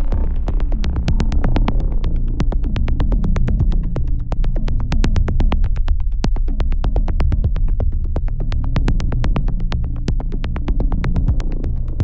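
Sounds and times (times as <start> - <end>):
electronic music: 0.0 - 5.4
deep synthesizer bass: 0.0 - 12.0.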